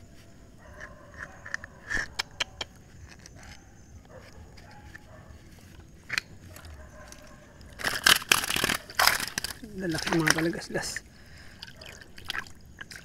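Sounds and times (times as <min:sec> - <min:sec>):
water splashing: 0:08.0 - 0:13.0.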